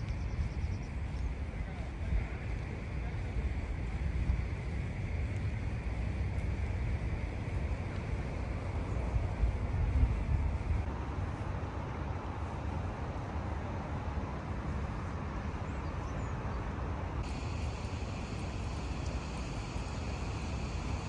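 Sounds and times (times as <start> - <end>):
low outdoor rumble: 0.0 - 21.0
steady hiss: 17.2 - 21.0.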